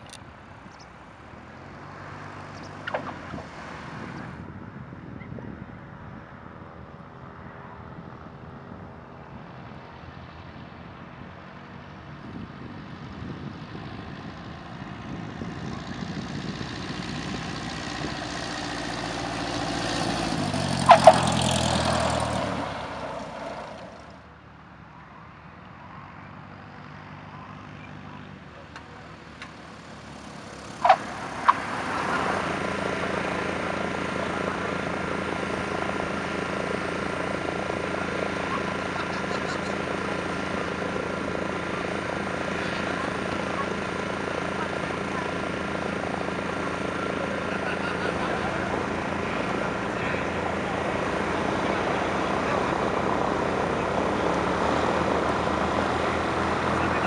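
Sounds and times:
light aircraft engine: 0.0s - 57.0s
tyre chirps: 30.5s - 36.8s.

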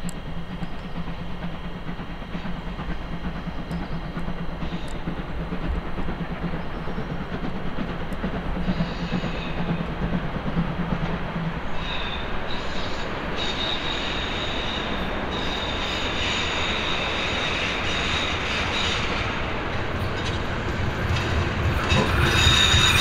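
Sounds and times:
steam hissing: 0.0s - 23.0s
steam locomotive running: 0.0s - 23.0s
high wheel squeal: 21.2s - 23.0s.

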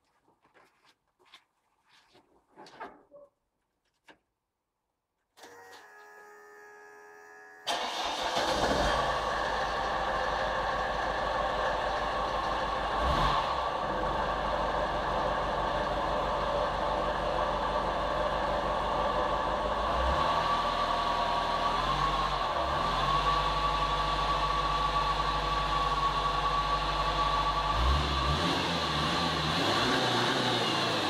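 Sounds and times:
starter motor whine: 5.4s - 13.0s
diesel engine idling: 7.7s - 29.6s.

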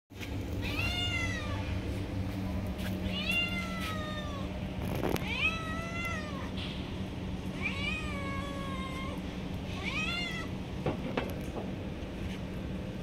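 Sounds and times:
steady low hum: 0.1s - 13.0s
cat meowing: 0.6s - 1.6s, 3.0s - 4.5s, 5.1s - 6.6s, 7.6s - 10.6s.

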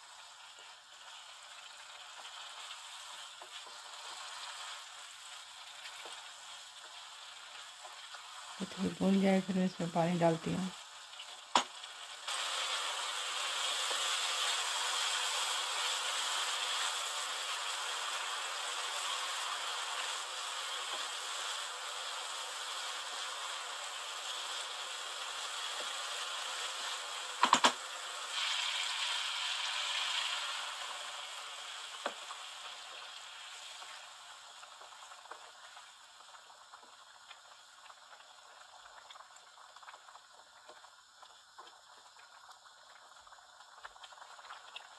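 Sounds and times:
curry simmering: 0.0s - 44.9s
fish sizzling in a wok: 0.0s - 44.9s
wooden spoon knocking on pan: 27.4s - 27.8s.

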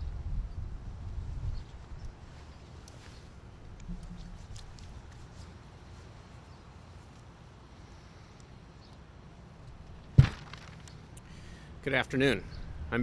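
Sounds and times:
low steady hum: 0.0s - 13.0s
sharp thump: 10.2s - 10.7s.

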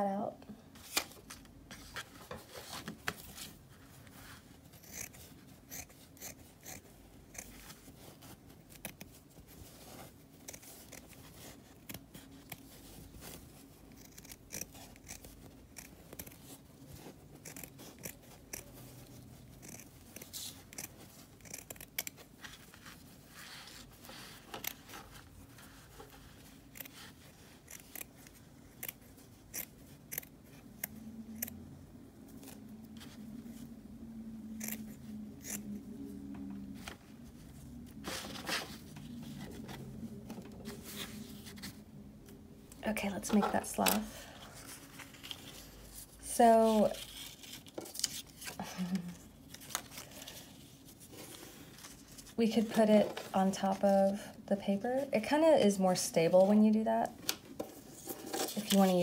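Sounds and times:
scissors snipping felt: 17.4s - 18.7s, 19.6s - 22.2s, 27.6s - 31.5s.

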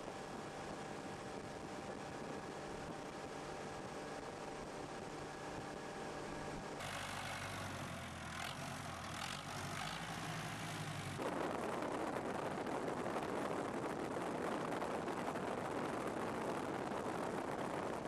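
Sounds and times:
tractor engine running: 6.7s - 11.5s
steady rushing noise: 6.8s - 18.0s.

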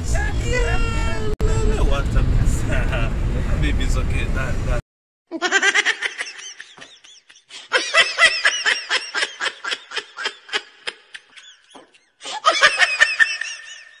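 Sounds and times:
high-pitched laughing: 5.3s - 14.0s.

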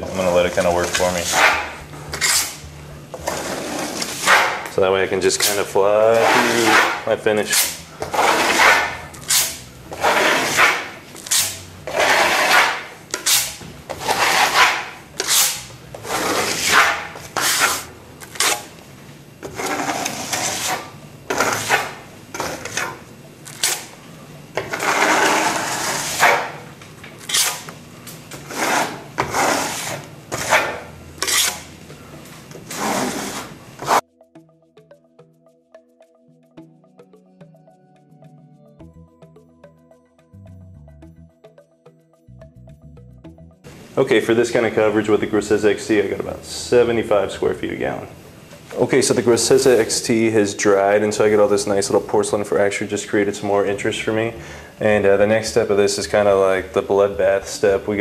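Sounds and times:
trowel scraping plaster on wall: 0.2s - 2.6s, 3.2s - 4.7s, 5.4s - 18.7s, 19.4s - 23.0s, 24.6s - 26.6s, 27.2s - 27.7s, 28.4s - 31.7s, 32.7s - 34.0s.

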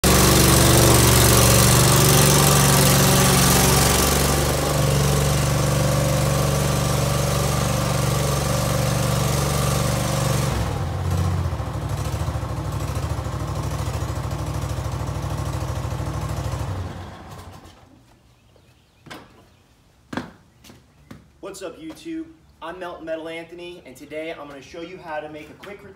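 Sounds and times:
skid steer engine running: 0.0s - 18.0s.

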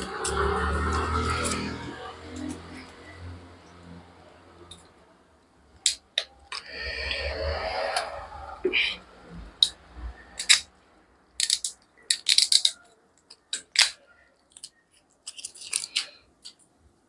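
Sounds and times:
plastic seal tearing and crinkling: 11.4s - 16.6s.

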